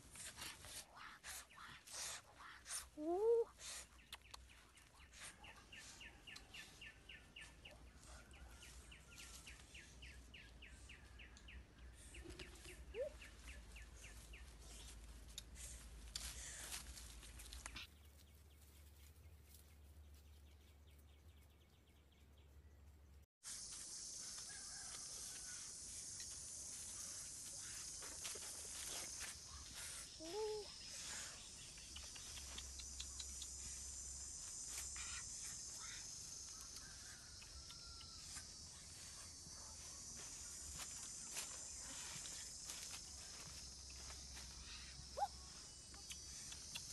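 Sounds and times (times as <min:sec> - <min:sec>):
high-pitched insect drone: 0:23.5 - 0:31.4, 0:32.2 - 0:46.9
bird chirps: 0:26.9 - 0:46.9.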